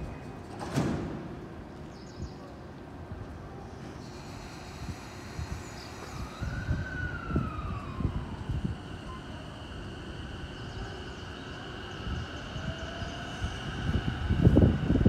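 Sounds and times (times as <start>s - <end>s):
electric train inverter whine: 3.0s - 15.0s.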